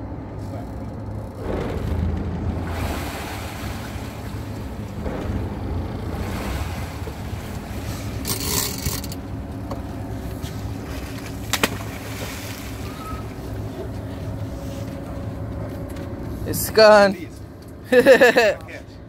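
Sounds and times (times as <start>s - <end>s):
boat engine humming: 0.0s - 19.0s
wind: 0.0s - 19.0s
sea noise: 1.3s - 14.9s.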